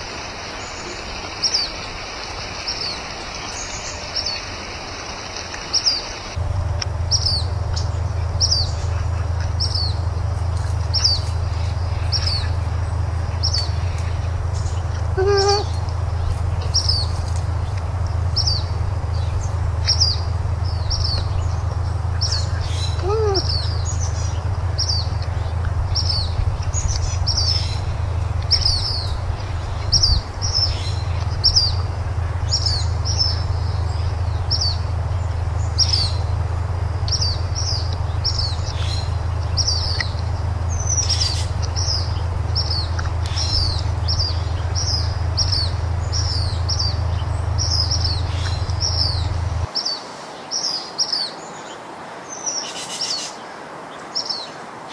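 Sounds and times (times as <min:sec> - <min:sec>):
bird chirping: 0:00.0 - 0:53.4
lower pitched bird calls: 0:00.0 - 0:53.5
steady low hum: 0:06.1 - 0:49.7.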